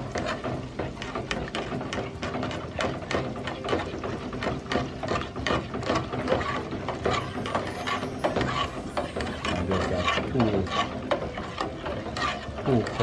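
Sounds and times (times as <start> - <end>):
spoon scraping a metal pot: 4.7 - 13.0.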